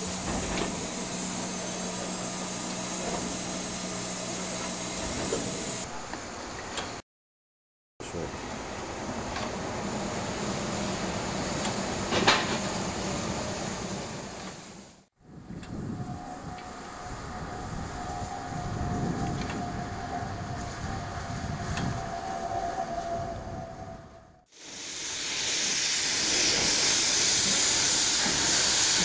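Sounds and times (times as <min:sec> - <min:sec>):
steam locomotive hiss: 0:00.0 - 0:06.0, 0:24.5 - 0:29.0.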